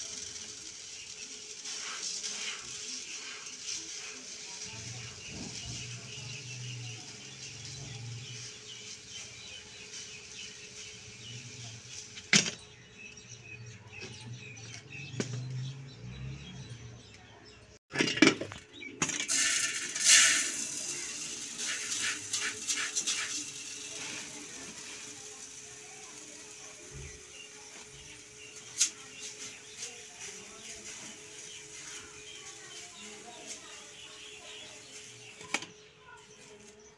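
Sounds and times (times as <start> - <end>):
grain pouring into a pot: 0.0 - 12.3, 19.0 - 35.5
grain rattling in a steel pot: 0.0 - 12.7, 17.9 - 36.7.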